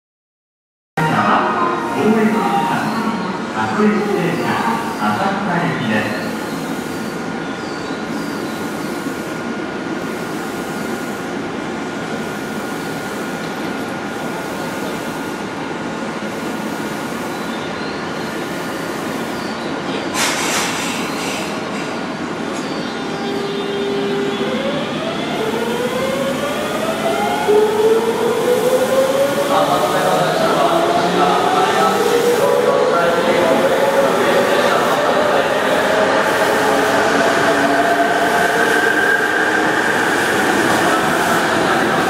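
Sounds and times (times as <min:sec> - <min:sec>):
short air hiss: 0:20.2 - 0:21.6
electric train hum: 0:21.7 - 0:42.0.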